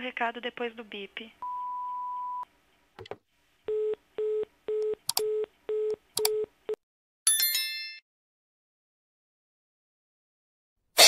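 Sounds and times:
telephone busy signal beeps: 1.4 - 2.4.

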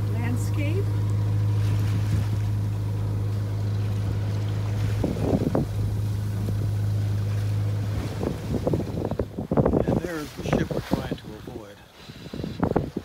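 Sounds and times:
boat engine humming: 0.0 - 13.0
water noise: 0.0 - 13.0
wind on microphone: 1.5 - 2.7, 3.8 - 13.0.

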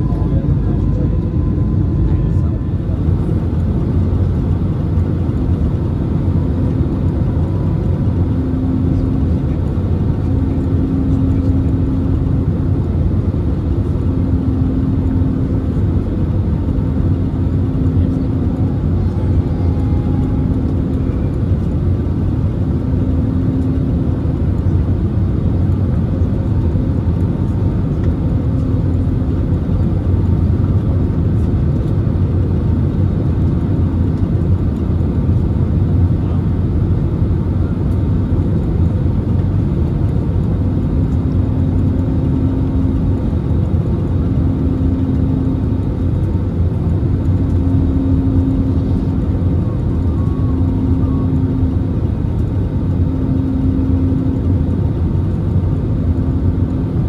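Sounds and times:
faint hum: 0.0 - 5.7, 38.4 - 57.0
jet engine cabin rumble: 0.0 - 57.0.

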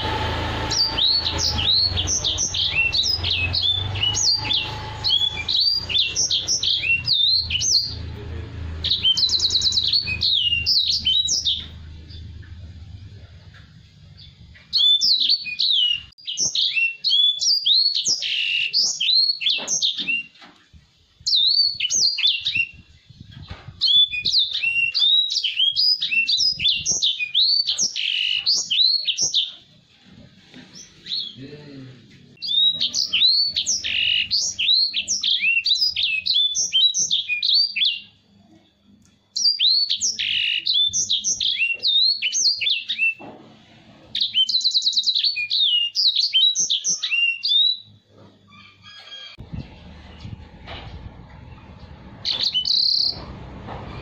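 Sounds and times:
buzzy bird trill: 0.0 - 12.5, 32.4 - 38.1, 52.2 - 53.3
caged bird singing: 0.0 - 20.4, 21.0 - 38.6, 39.3 - 54.0.

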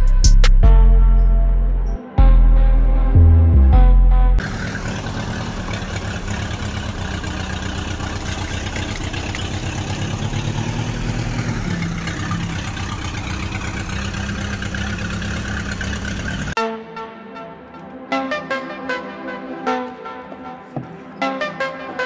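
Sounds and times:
engine idling: 4.4 - 16.6.

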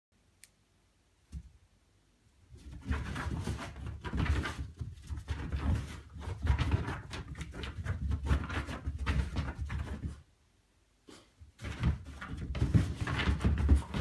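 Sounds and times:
dog paws thumping on carpet: 2.5 - 10.2, 11.6 - 14.0.

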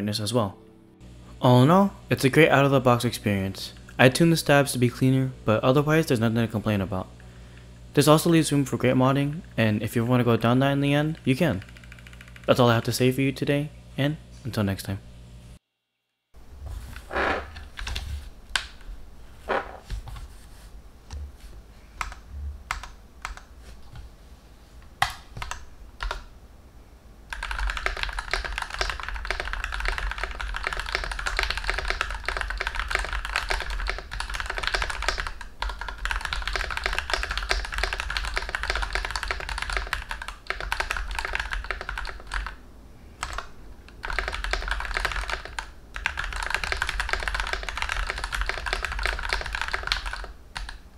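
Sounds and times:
mechanical keyboard typing: 10.8 - 12.9, 22.0 - 23.5, 25.0 - 26.3, 27.3 - 42.6, 43.2 - 50.8.

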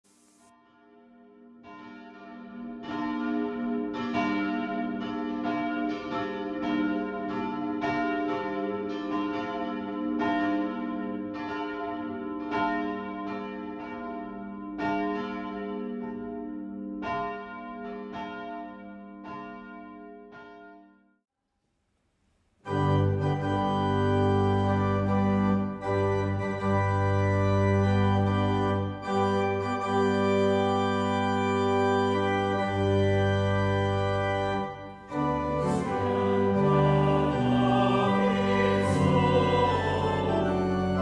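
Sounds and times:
church bells ringing: 0.7 - 21.0, 22.6 - 41.0.

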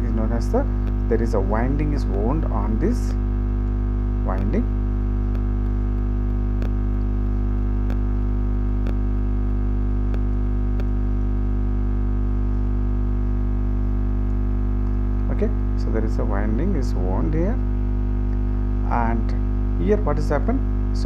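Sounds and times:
electrical mains hum: 0.0 - 21.0
faint ticks: 5.2 - 7.2, 7.8 - 8.2, 8.8 - 9.1, 10.0 - 11.0.

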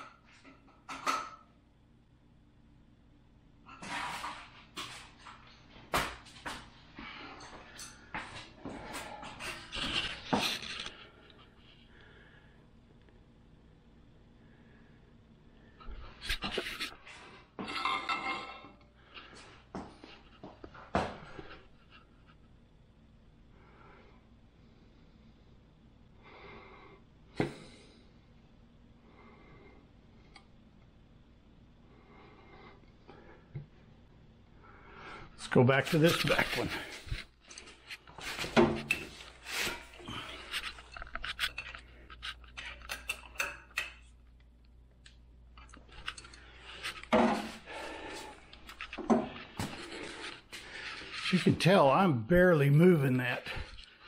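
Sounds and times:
faint low hum: 0.0 - 54.0
soft breaths: 6.8 - 12.8, 23.4 - 30.6, 31.7 - 42.4, 46.0 - 51.4
clicks and scrapes of tool handling: 35.9 - 44.1.

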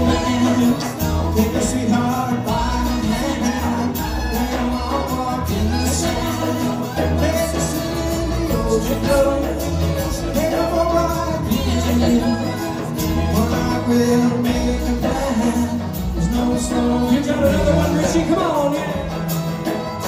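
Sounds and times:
live band playing: 0.0 - 20.0
person singing: 0.0 - 20.0.

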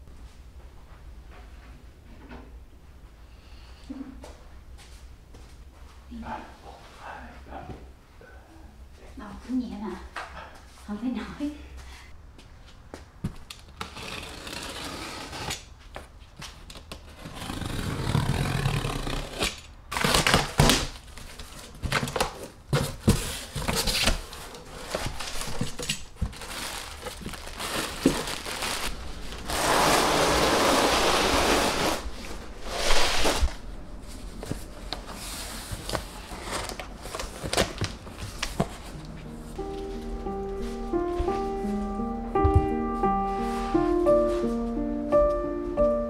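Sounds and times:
cardboard scraping and crumpling: 13.7 - 15.7, 17.0 - 39.5.

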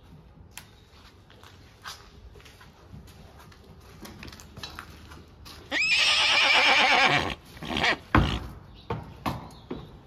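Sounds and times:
horse whinnying: 5.7 - 8.5.

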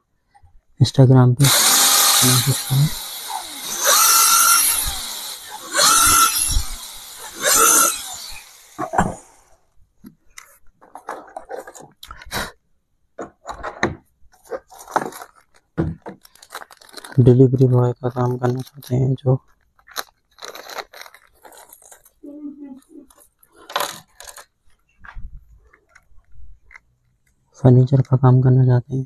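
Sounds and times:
cordless drill boring into wood: 1.4 - 9.6.

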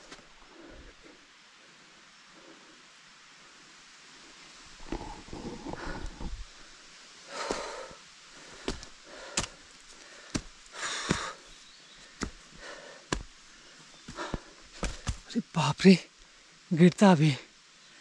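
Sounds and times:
heavy breathing: 4.8 - 6.6, 7.3 - 15.2.

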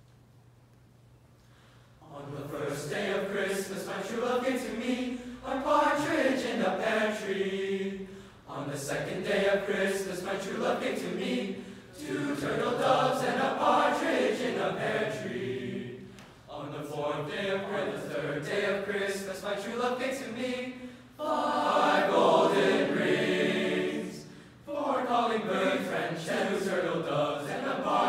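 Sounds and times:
singers breathing: 1.4 - 2.0, 5.0 - 5.5, 8.0 - 8.5, 11.5 - 12.0, 20.7 - 21.2, 24.2 - 24.7
boys' choir singing a cappella: 2.0 - 28.0.

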